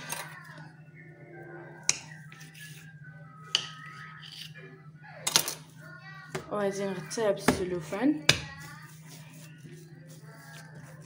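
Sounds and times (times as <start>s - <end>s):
quiet background music: 0.0s - 11.0s.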